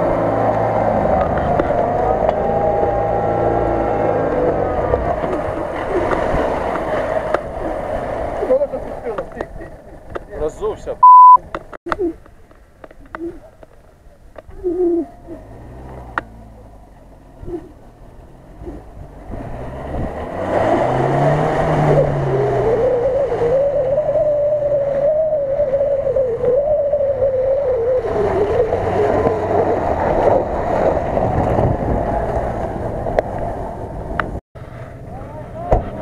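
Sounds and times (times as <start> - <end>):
pickup engine revving in mud: 0.0 - 8.6, 15.2 - 26.4, 27.6 - 35.1.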